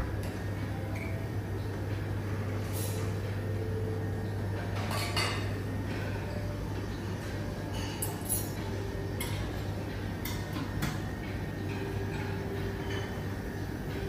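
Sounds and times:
steady low hum: 0.0s - 14.0s
glassware and cutlery clinking: 4.6s - 5.6s, 7.6s - 13.3s.

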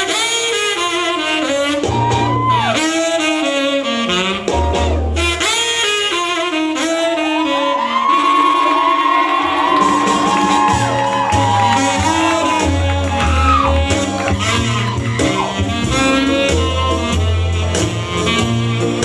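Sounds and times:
instrumental dance music: 7.4s - 19.0s.

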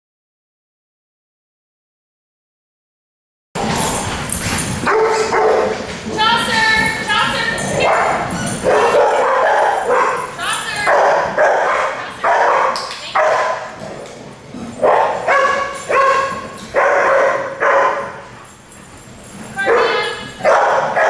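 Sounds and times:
dogs barking: 4.8s - 6.0s, 7.2s - 18.4s, 19.6s - 21.0s.

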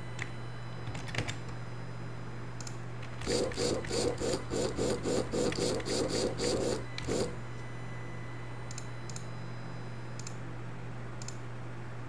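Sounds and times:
gear motor whirring: 3.1s - 7.4s.

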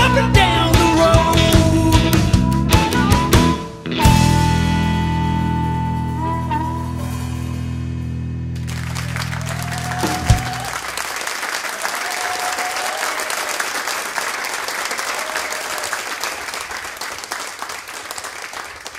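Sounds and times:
blues-rock band chord ringing: 0.0s - 10.8s
audience applauding: 8.6s - 18.9s.

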